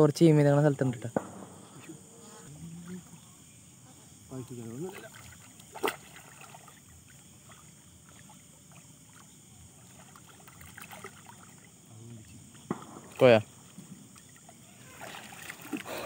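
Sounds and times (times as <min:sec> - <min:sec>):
night insects humming: 0:00.0 - 0:16.0
water sloshing from wading: 0:04.4 - 0:16.0.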